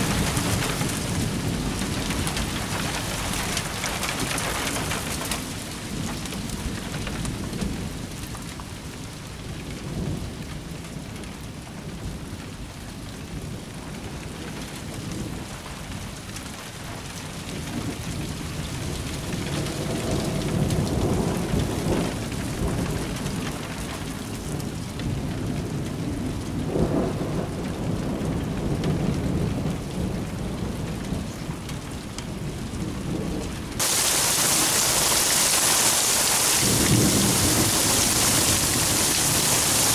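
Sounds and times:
heavy rain: 0:00.0 - 0:39.9
steady rain: 0:00.0 - 0:39.9
rolling thunder: 0:32.3 - 0:39.9.

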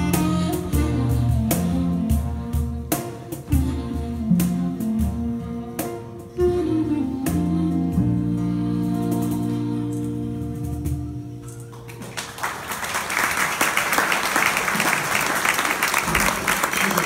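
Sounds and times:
bass guitar: 0:00.0 - 0:12.1.

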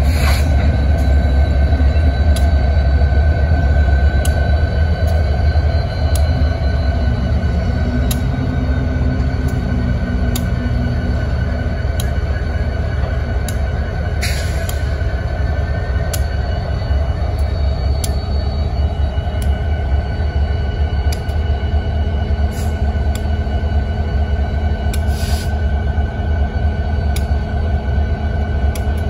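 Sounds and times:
high whine: 0:00.0 - 0:29.0
locomotive engine rumble: 0:00.0 - 0:29.0
sharp clicks: 0:21.1 - 0:21.4.

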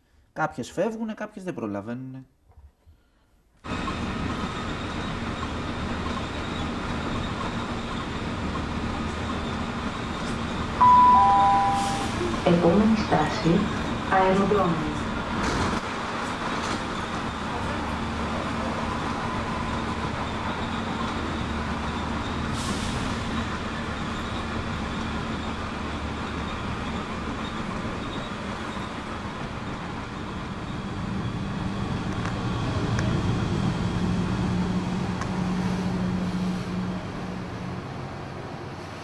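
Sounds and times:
vehicle running noise: 0:03.7 - 0:39.0.

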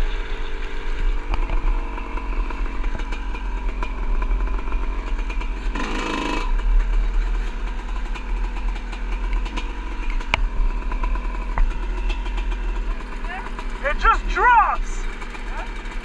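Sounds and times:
dirt bike engine running: 0:00.0 - 0:16.0.

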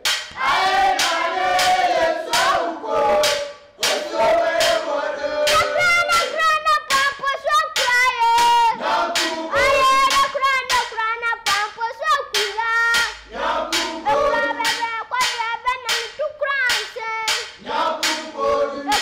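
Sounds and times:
percussive claps or drum hits: 0:00.0 - 0:19.0
boy singing in a high voice: 0:05.5 - 0:08.8, 0:09.5 - 0:13.2, 0:14.0 - 0:17.6.

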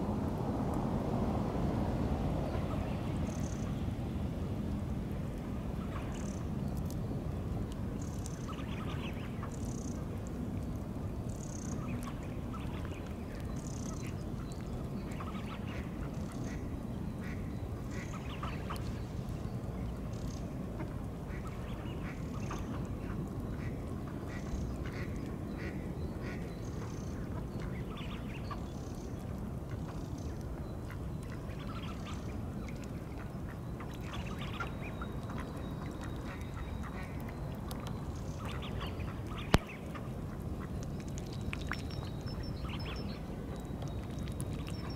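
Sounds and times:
low background noise: 0:00.0 - 0:44.9.

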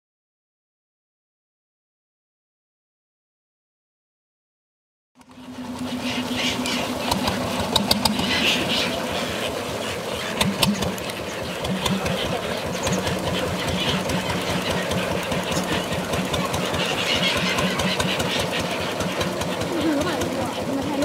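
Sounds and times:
motorboat engine chugging: 0:05.2 - 0:21.0.

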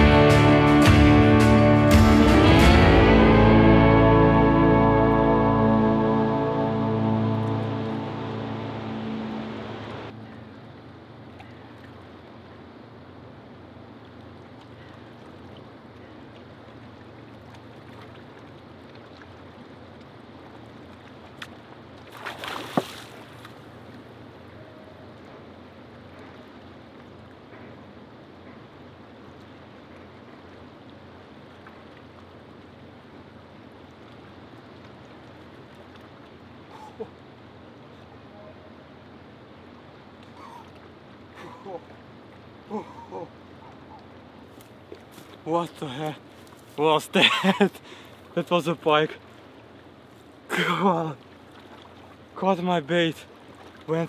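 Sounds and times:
river water washing against rocks: 0:11.1 - 0:24.4, 0:39.1 - 0:54.0.

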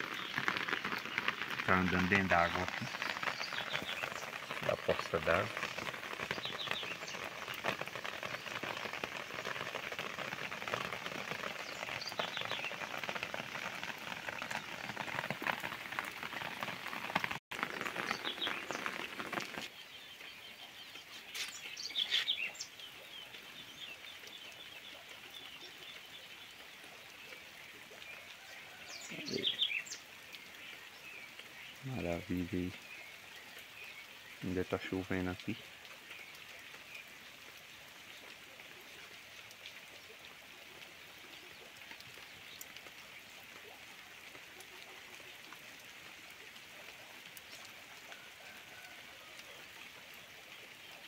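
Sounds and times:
birds chirping: 0:00.0 - 0:37.3
rain falling on wet ground: 0:00.0 - 0:51.0.

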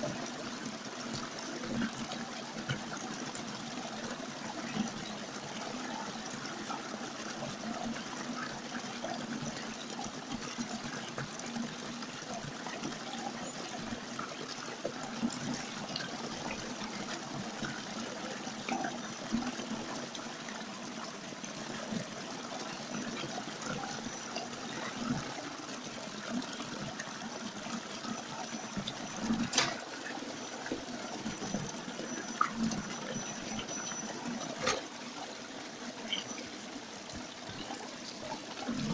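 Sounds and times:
stream splashing over rocks: 0:00.0 - 0:38.9
sharp clicks and knocks: 0:29.4 - 0:29.8.

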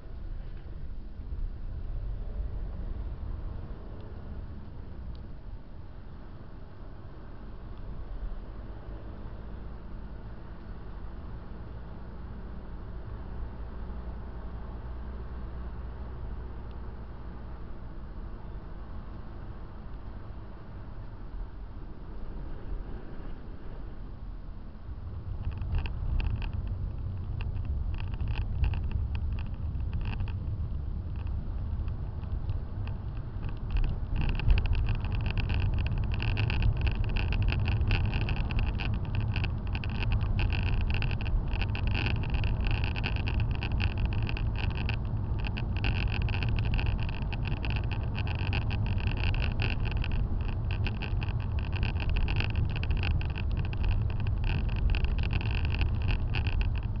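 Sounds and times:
car road and engine noise: 0:00.0 - 0:57.0.

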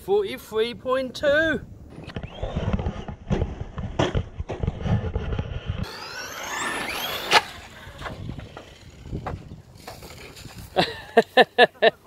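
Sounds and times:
electric motor whine rising: 0:01.9 - 0:03.3, 0:04.6 - 0:10.4.

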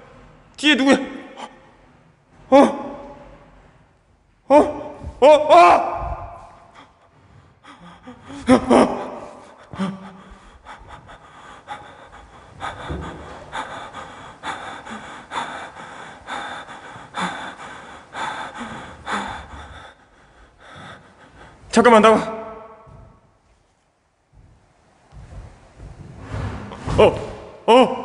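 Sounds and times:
man breathing heavily: 0:05.9 - 0:27.7.

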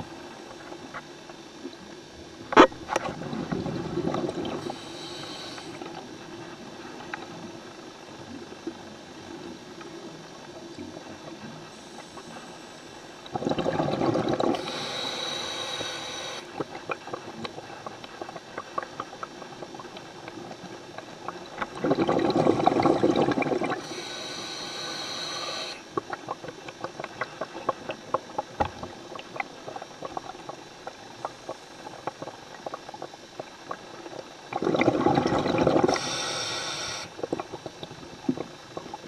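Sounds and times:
water noise: 0:00.0 - 0:39.0
diver breathing through regulator: 0:03.4 - 0:06.0, 0:11.8 - 0:16.6, 0:21.9 - 0:25.9, 0:35.6 - 0:37.2.

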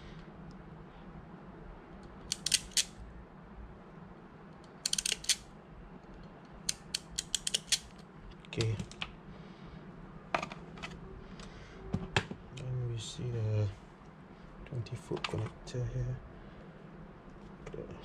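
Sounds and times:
crimping pliers clicking and snipping: 0:02.3 - 0:02.9, 0:06.7 - 0:07.8.

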